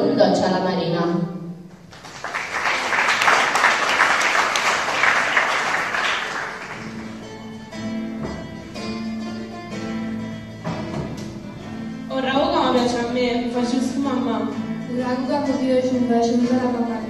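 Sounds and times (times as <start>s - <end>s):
audience clapping: 1.7s - 7.8s
slow plucked instrument notes: 6.8s - 13.4s.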